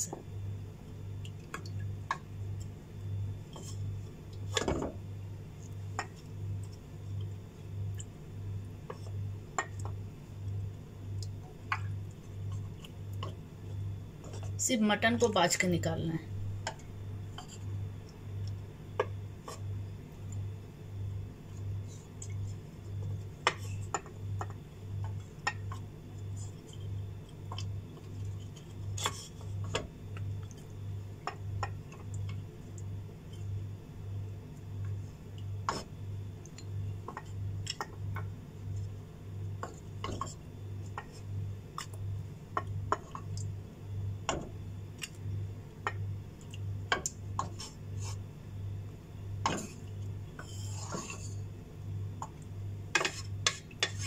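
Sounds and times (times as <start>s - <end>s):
low pulsing hum: 0.0s - 54.0s
wooden spoon scraping in pot: 3.5s - 4.9s, 14.2s - 14.6s, 17.2s - 17.8s, 21.5s - 24.1s, 25.1s - 29.9s, 35.0s - 36.0s, 39.6s - 42.0s, 47.3s - 48.3s, 49.4s - 51.5s, 52.9s - 54.0s.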